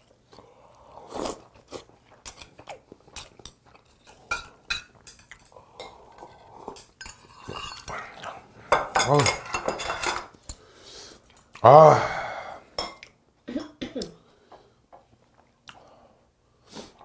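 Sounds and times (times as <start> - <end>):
chewing: 0.0 - 8.5.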